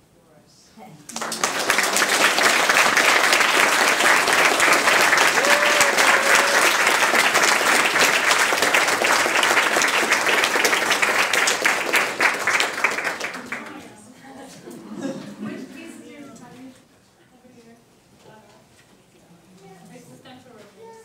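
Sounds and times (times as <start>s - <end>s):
crowd applauding: 1.1s - 13.8s.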